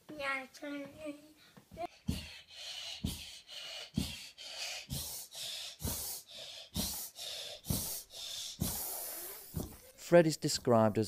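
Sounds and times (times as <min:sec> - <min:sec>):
child breathing and gasping: 0:01.3 - 0:10.0.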